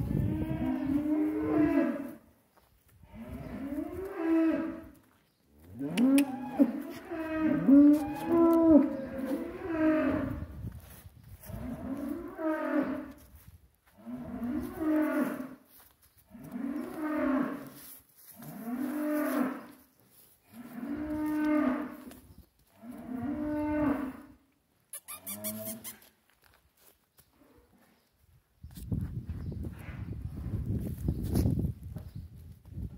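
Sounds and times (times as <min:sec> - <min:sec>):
young bull mooing: 0:00.0 - 0:02.2, 0:05.8 - 0:10.5.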